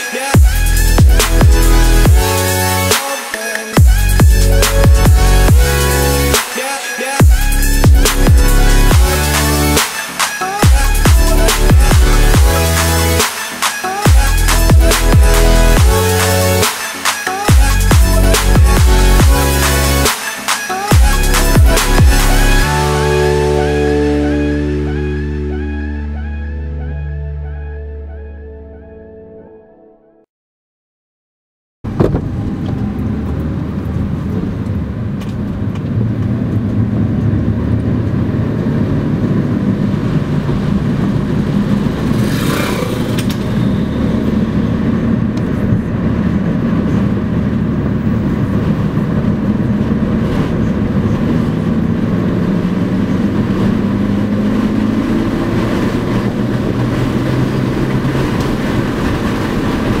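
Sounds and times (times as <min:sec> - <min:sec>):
vehicle engine and tyre noise: 0:31.8 - 1:00.0.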